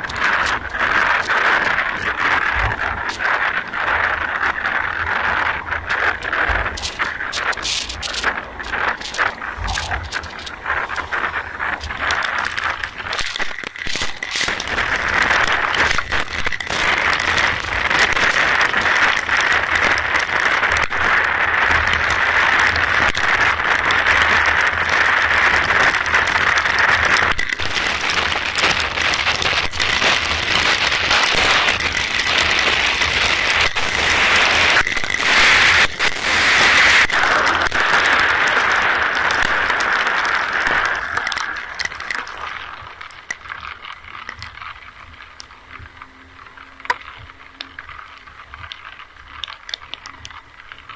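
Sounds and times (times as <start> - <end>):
low rumble: 0.0 - 22.3
steady rain pattering: 0.0 - 50.9.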